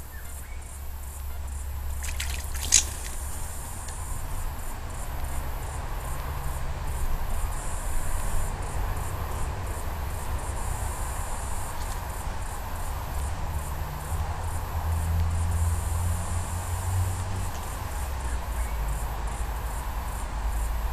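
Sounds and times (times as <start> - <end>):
high-pitched insect trilling: 0.1 - 4.2.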